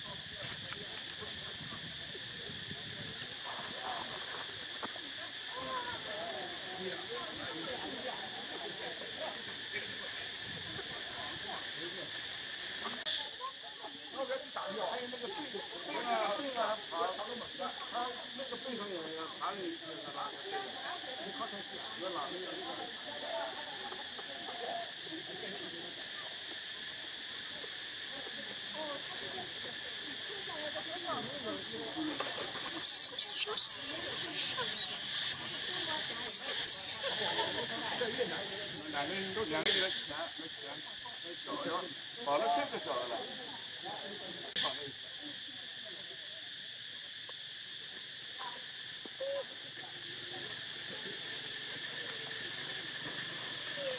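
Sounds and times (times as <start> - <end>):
high-pitched insect drone: 0.0 - 53.9
faint squeaky calls: 32.1 - 37.6, 38.6 - 39.1.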